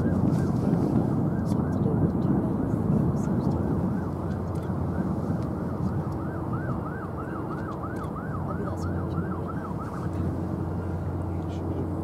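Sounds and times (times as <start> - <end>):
siren rising and falling: 0.0 - 0.6, 4.9 - 10.7.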